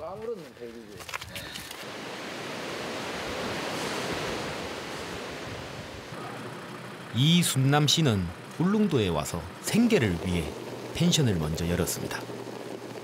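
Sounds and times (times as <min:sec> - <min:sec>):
waves washing against rocks: 0:01.8 - 0:06.0.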